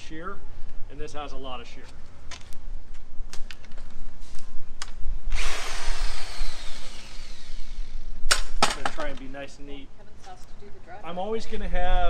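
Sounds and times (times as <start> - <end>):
mixer drill motor whine: 5.3 - 8.2.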